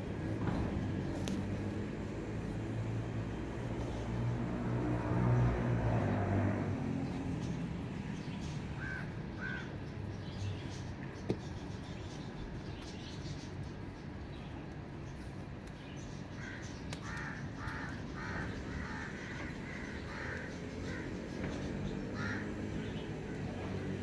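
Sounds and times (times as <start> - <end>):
low engine hum: 0.0 - 24.0
crow cawing: 8.8 - 9.7, 16.4 - 21.4, 22.1 - 22.7.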